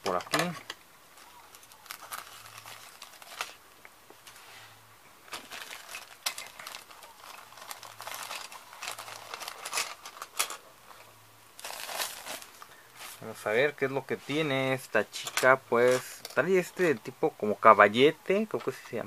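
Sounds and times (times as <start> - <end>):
plastic bag crinkling: 1.2 - 4.4, 5.2 - 13.6.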